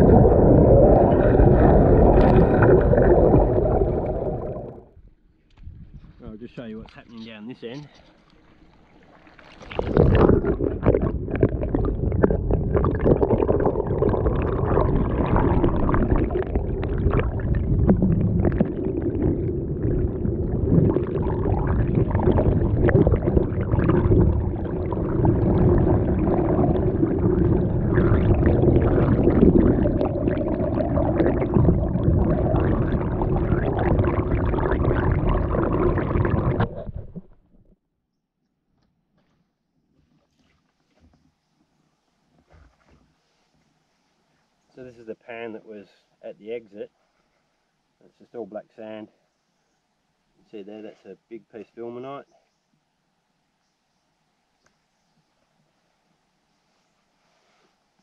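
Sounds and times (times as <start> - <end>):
water swirling underwater: 0.0 - 5.1, 8.5 - 37.8.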